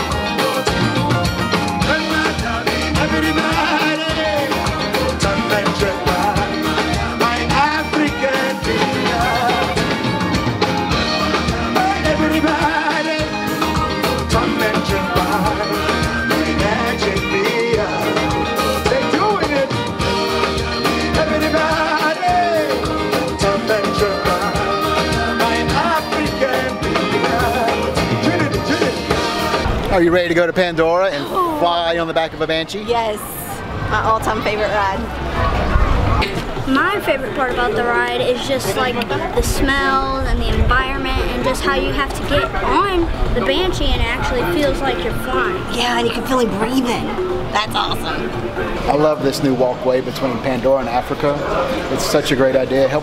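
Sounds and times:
live band playing dance music: 0.0s - 29.8s
steady drum beat: 0.0s - 29.8s
person singing: 1.8s - 10.2s, 11.0s - 29.4s.

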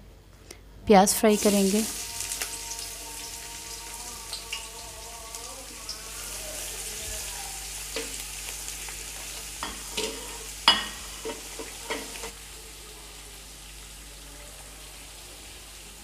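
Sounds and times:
onions sizzling in hot oil: 1.2s - 16.0s.

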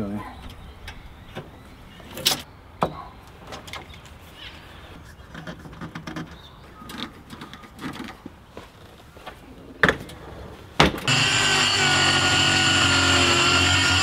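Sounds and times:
knocks and scraping: 5.0s - 8.4s.

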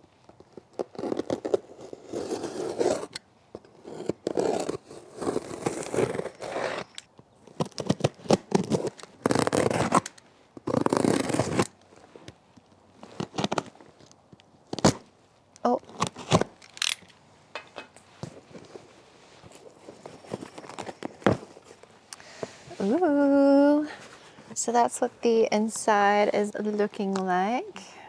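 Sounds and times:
box cutter slicing packing tape: 0.8s - 3.2s, 3.8s - 11.7s.

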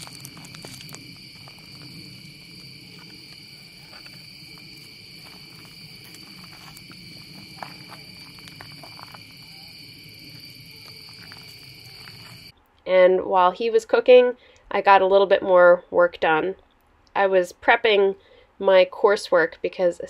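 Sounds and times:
campfire crackling: 0.0s - 12.5s
insects trilling: 0.0s - 12.5s.

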